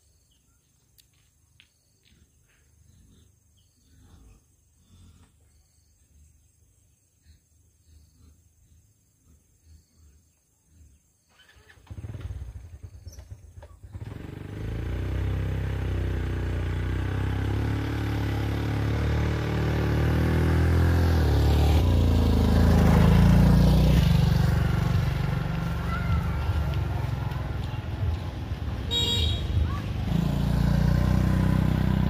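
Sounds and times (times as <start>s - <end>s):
small motorbike engine running: 11.3s - 32.0s.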